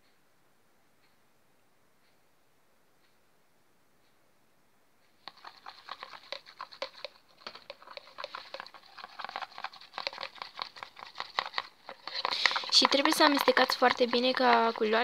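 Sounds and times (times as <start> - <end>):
stick mixing sticky paint: 5.2 - 15.0.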